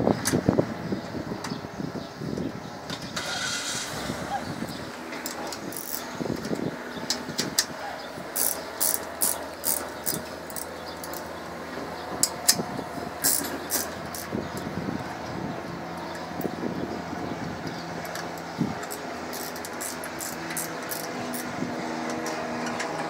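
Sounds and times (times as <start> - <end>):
screwdriver clicking on sheet metal: 5.3 - 7.7, 8.4 - 11.3, 18.8 - 21.5.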